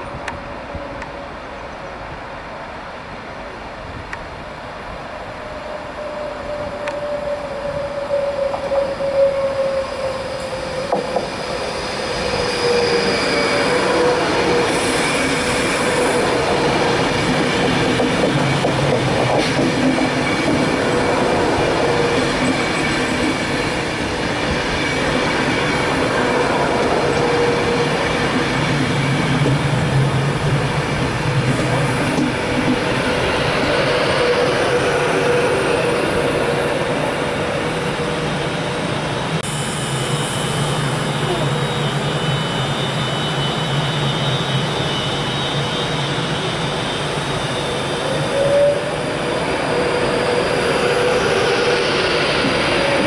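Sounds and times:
electric train whining: 4.2s - 53.0s
wheels squealing: 6.0s - 17.1s.

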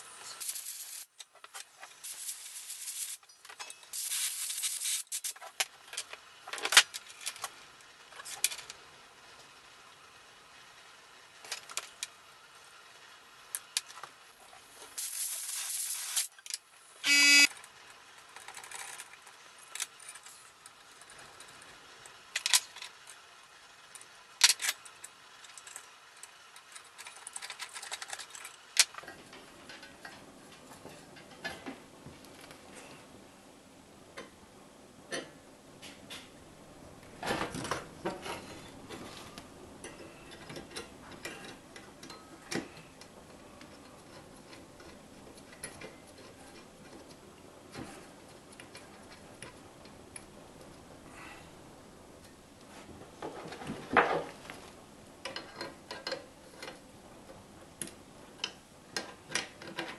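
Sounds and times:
loud honking whistle: 17.1s - 17.5s
metal parts clicking and knocking: 18.2s - 23.2s, 23.9s - 30.2s, 55.2s - 56.9s, 57.7s - 59.9s.

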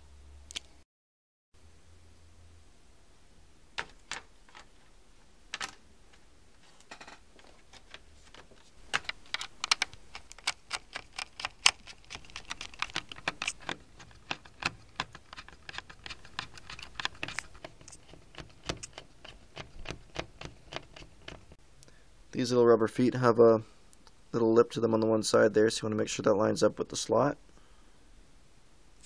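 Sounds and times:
screwdriver clicking in screws: 9.0s - 21.4s.

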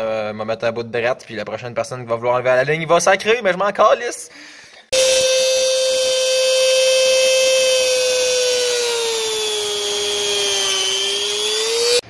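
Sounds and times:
rotary grinder cutting metal: 5.0s - 12.0s.

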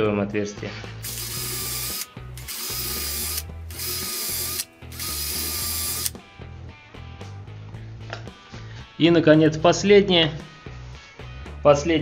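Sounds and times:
cordless drill drilling wood: 1.0s - 6.1s.

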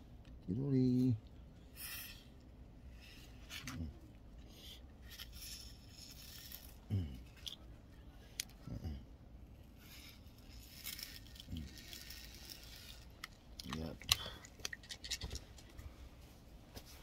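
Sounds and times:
small parts clicking and scraping: 4.4s - 8.6s, 9.7s - 15.8s.

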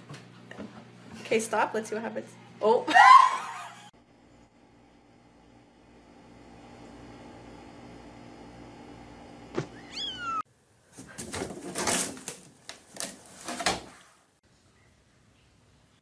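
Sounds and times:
kitten meowing: 9.8s - 10.4s
cat scuffling in a hamper: 11.0s - 14.0s.

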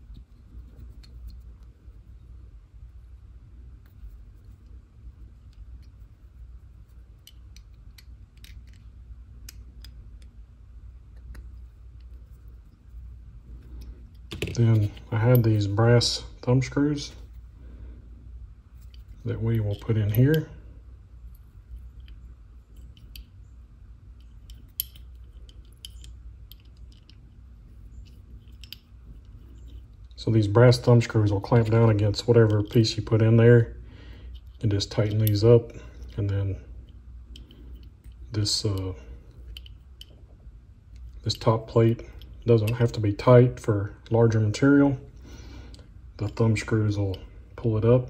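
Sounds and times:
light metallic clicks: 21.3s - 23.5s, 24.2s - 27.2s, 27.9s - 30.2s, 34.3s - 40.2s
hex key turning screws: 24.2s - 27.2s, 28.0s - 29.8s.

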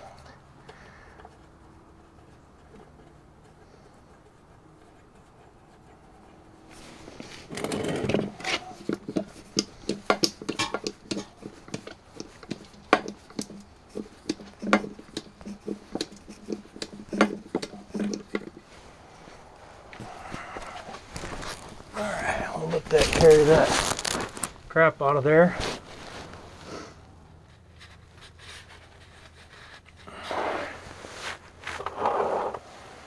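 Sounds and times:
hand pump clacking: 7.5s - 18.6s.

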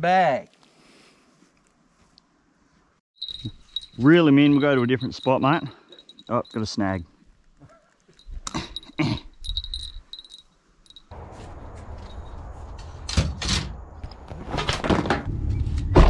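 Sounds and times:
canvas canopy pulled down: 11.1s - 16.0s
steady low rumble: 11.1s - 16.0s.

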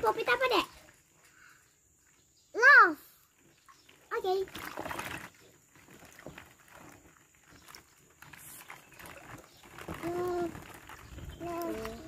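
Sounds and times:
water stirred by hands: 0.0s - 12.0s
plastic balls clicking and rustling: 4.6s - 12.0s.

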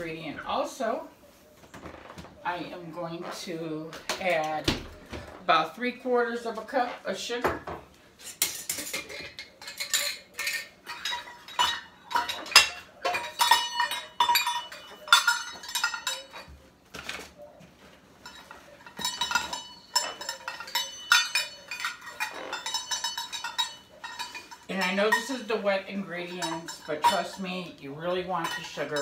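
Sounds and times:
metal measuring cups clinking: 8.2s - 17.2s, 18.2s - 29.0s.

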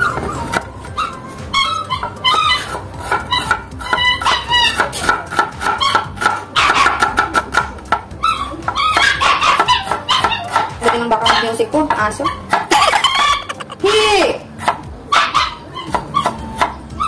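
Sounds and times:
dogs whining and yapping: 0.0s - 5.0s, 5.6s - 7.1s, 8.1s - 13.9s, 15.1s - 17.0s
background music: 0.0s - 17.0s
knife chopping on wooden board: 2.3s - 13.6s.

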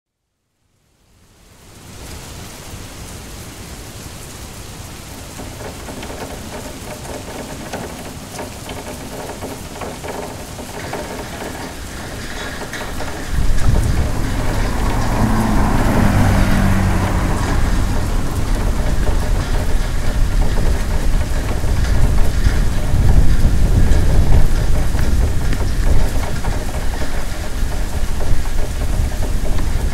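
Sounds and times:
steady rain: 0.1s - 29.9s
loud low rumble: 13.0s - 26.9s.

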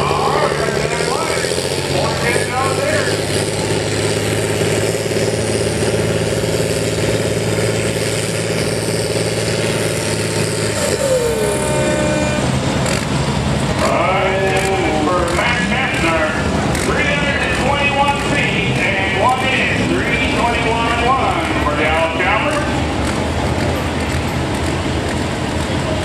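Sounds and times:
tractor diesel engine under load: 0.0s - 26.0s.

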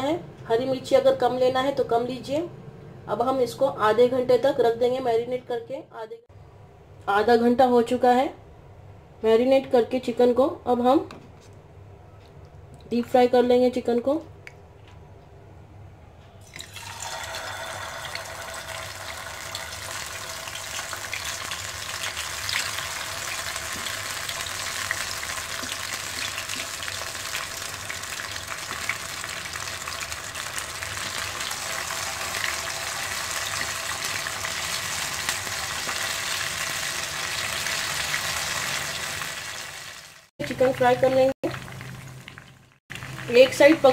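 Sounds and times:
chicken sizzling in hot oil: 16.7s - 43.9s.

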